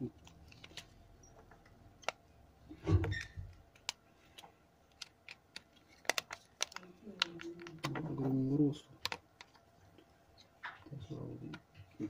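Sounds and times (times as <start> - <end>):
fingers clicking plastic phone housing: 2.0 - 2.2, 3.1 - 4.0, 4.9 - 8.0, 9.0 - 9.6.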